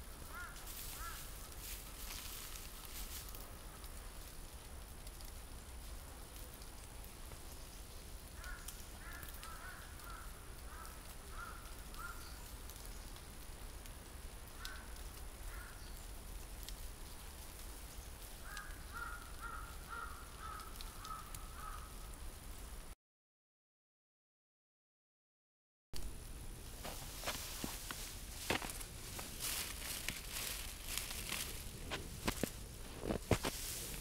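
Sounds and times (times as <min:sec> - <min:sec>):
crow cawing: 0:00.3 - 0:01.5, 0:08.4 - 0:12.4, 0:14.6 - 0:15.8, 0:18.4 - 0:22.0.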